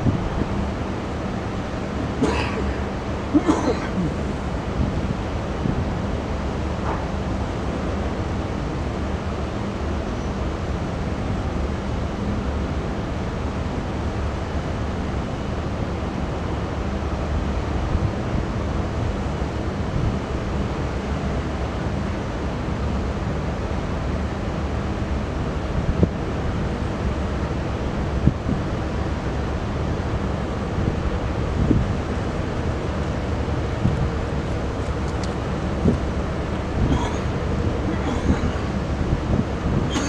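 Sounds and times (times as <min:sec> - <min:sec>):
wind buffeting microphone: 0:00.0 - 0:02.2, 0:04.0 - 0:08.4, 0:25.6 - 0:26.5, 0:27.6 - 0:40.0
diesel engine rumbling: 0:00.0 - 0:08.2, 0:29.5 - 0:40.0.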